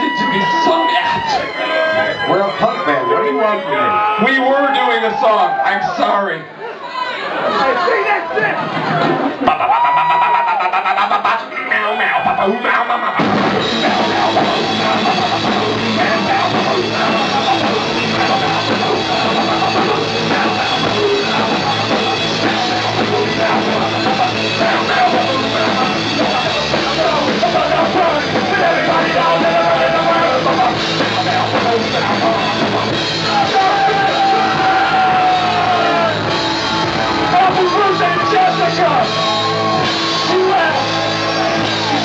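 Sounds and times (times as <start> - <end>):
singer yelling into microphone: 0.0 - 6.5, 9.5 - 42.0
punk rock band playing: 13.0 - 42.0.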